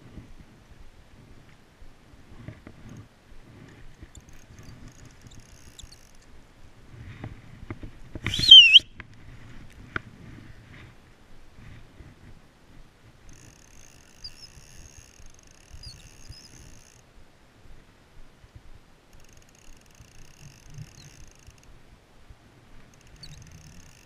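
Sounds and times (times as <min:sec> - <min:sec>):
spinning reel whirring: 0:03.9 - 0:06.2, 0:13.3 - 0:17.0, 0:19.2 - 0:21.7, 0:22.9 - 0:24.0
faint chirps: 0:04.1 - 0:06.3, 0:13.4 - 0:17.0, 0:23.0 - 0:24.0.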